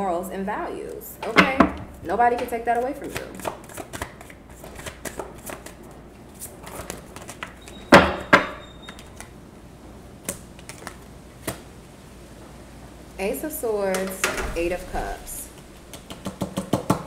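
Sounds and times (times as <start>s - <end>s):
cards clicking and tapping on table: 2.4s - 5.8s, 15.9s - 17.0s
cards slapping on table: 2.4s - 5.8s, 6.6s - 7.6s.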